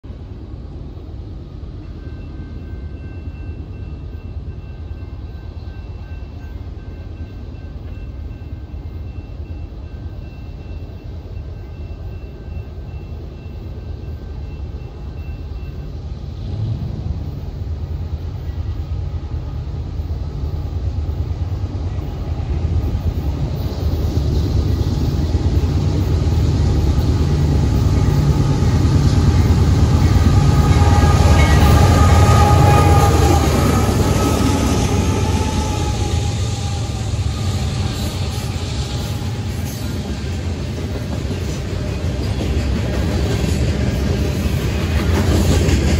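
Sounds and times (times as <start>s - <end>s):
diesel locomotive engine rumble: 0.0s - 45.9s.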